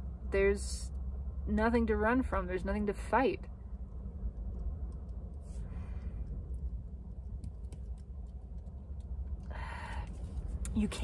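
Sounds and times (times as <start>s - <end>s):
low steady hum: 0.0s - 11.0s
soft breathing: 5.4s - 6.7s, 9.4s - 10.6s.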